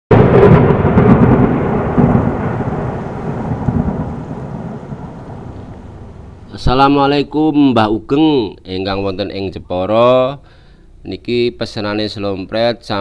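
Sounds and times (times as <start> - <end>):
loud rolling rumble: 0.1 - 7.3.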